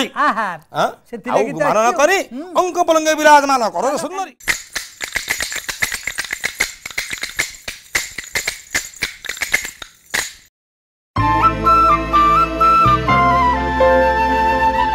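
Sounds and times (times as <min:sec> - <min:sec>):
wooden hand clappers clicking: 0:04.4 - 0:10.5
flute music: 0:11.2 - 0:14.9.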